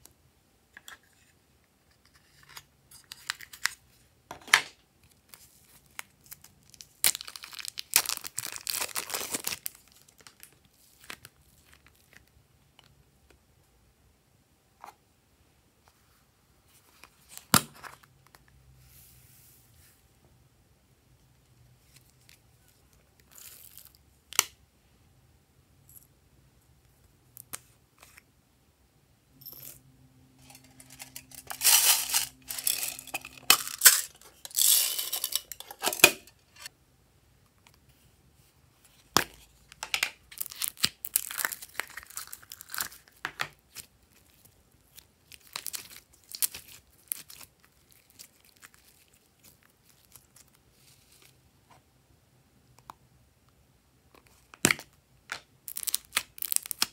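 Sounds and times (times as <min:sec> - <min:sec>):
beads shaken into glass trays: 0:30.4 - 0:36.2
plastic containers handled: 0:30.4 - 0:36.6.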